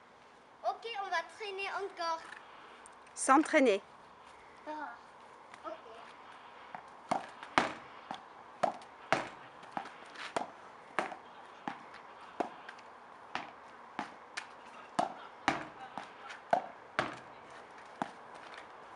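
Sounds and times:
tennis ball knocking against wall: 6.7 - 11.8, 13.3 - 17.3.

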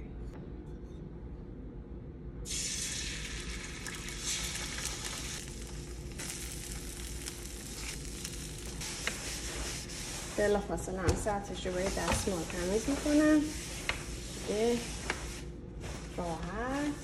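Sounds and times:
eggs sizzling on griddle: 2.5 - 9.7
spatula scraping: 7.7 - 17.0.

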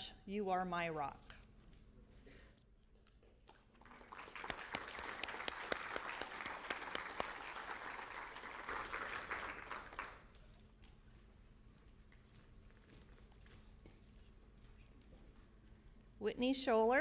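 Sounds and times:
audience applauding: 3.7 - 10.3.

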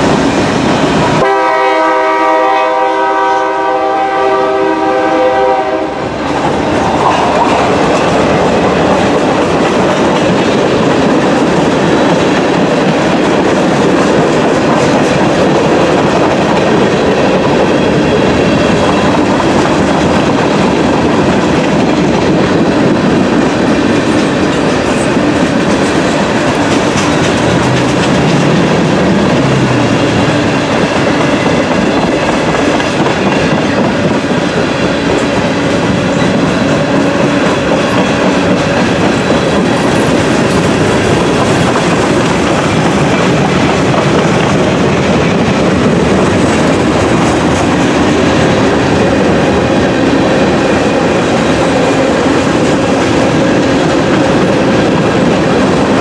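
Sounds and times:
train wheels rumbling on rails: 0.0 - 56.0
wheels clicking over rail joints: 6.4 - 34.4.

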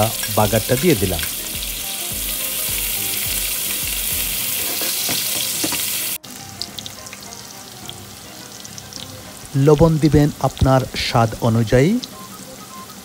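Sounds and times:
onions sizzling in hot oil: 0.0 - 13.0
spoon stirring in pan: 4.5 - 6.0.

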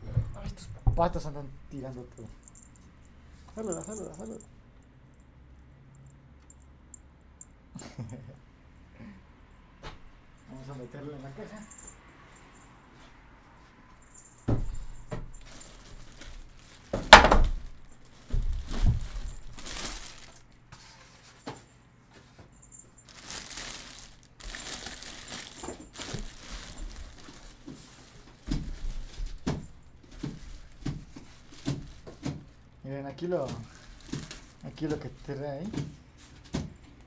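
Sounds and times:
plastic bag crinkling: 15.4 - 20.6, 23.0 - 32.2, 33.6 - 35.4
case thumping on wooden table: 17.1 - 17.6.

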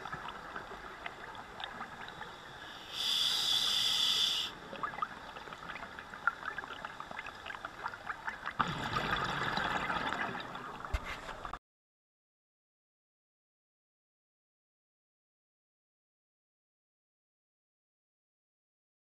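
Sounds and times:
regulator air hiss: 2.4 - 4.6
exhaled bubbles burbling: 4.7 - 10.9.

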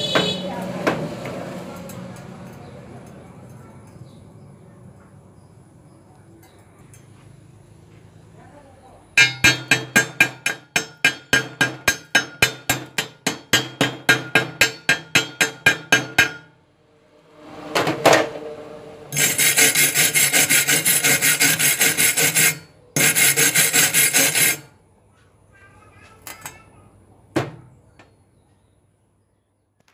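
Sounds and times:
chipping hammer tapping metal: 9.2 - 16.5
wire brush scrubbing metal: 19.1 - 24.8.

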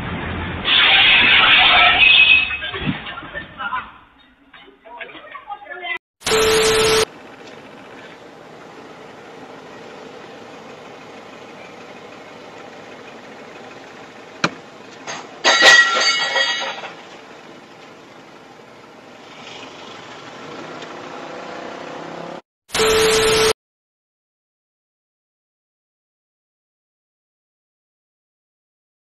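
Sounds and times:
barrier arm striking car: 14.4 - 17.0.

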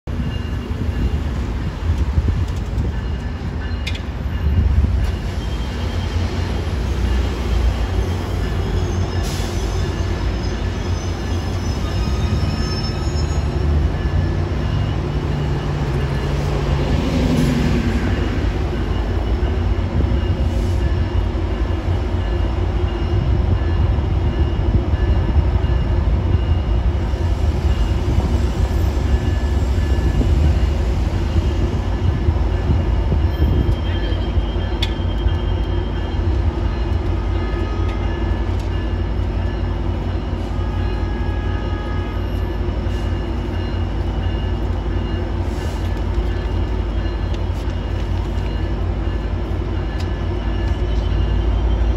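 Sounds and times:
street traffic: 0.0 - 51.9
train rumbling over bridge: 0.0 - 51.9
high wheel squeals: 7.0 - 15.4.

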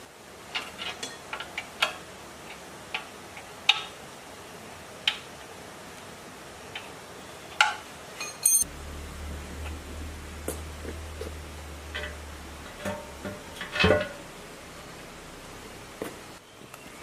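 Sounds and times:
metal tools clinking on engine: 8.2 - 8.6.

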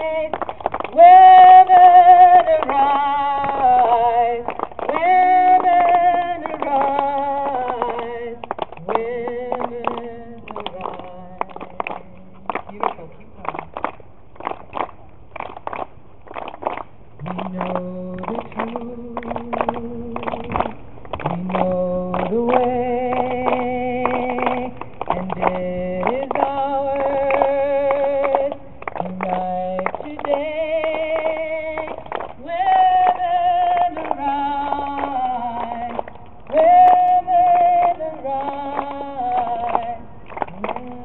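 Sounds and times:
women singing in harmony: 0.9 - 11.0, 29.2 - 41.0.

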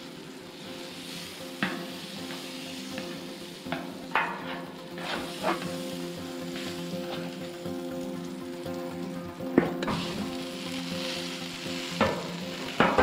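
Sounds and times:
butter and oil sizzling on griddle: 0.0 - 13.0
spatula knocking and scraping griddle: 1.5 - 7.4, 9.5 - 10.4, 11.9 - 13.0.

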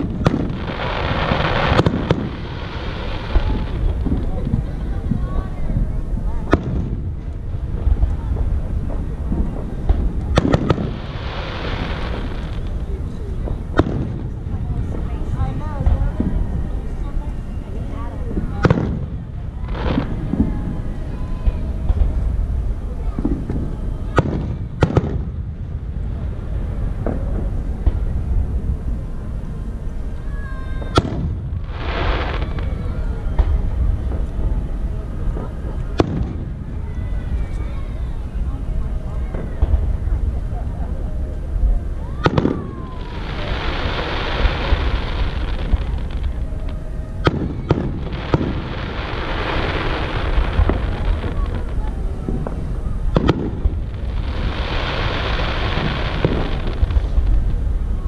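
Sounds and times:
continuous low rumble: 0.0 - 58.0
fireworks bangs: 0.0 - 58.0
firework whistle: 42.0 - 57.2.

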